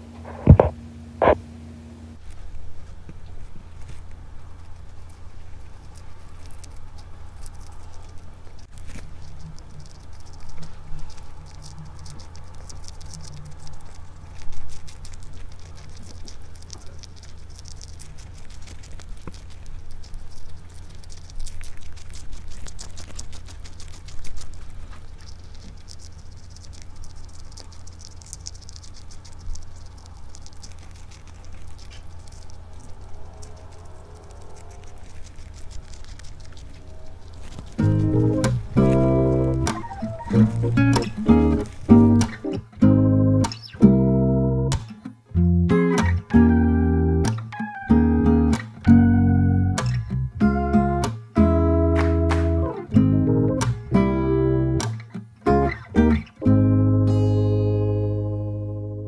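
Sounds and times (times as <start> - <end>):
steady low hum: 0.0 - 44.7, 48.2 - 54.8, 56.5 - 59.0
rat nibbling and chewing: 2.2 - 54.0.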